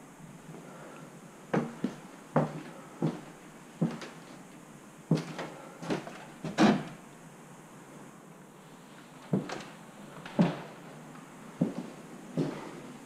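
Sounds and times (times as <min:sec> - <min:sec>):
footsteps on wooden boards: 0:01.5 - 0:04.4, 0:05.1 - 0:07.0, 0:09.3 - 0:10.8, 0:11.6 - 0:12.6.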